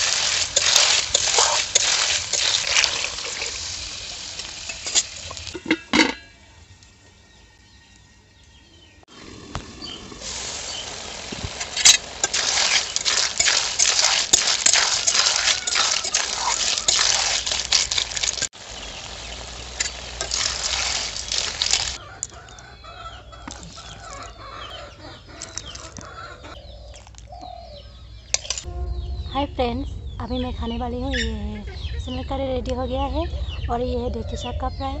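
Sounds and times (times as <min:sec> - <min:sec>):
spoon scraping pan: 0:00.0 - 0:03.8, 0:10.7 - 0:18.5, 0:19.8 - 0:22.4
loud sizzling in a wok: 0:00.0 - 0:06.5, 0:09.2 - 0:22.0
metal lid clink: 0:04.7 - 0:06.4
birds chirping: 0:06.3 - 0:35.0.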